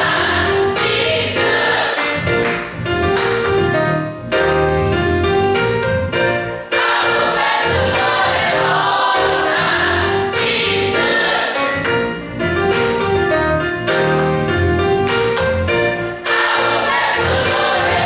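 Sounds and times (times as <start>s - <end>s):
church choir singing gospel: 0.0s - 2.6s, 6.5s - 12.0s, 16.2s - 18.0s
electric keyboard: 0.0s - 18.0s.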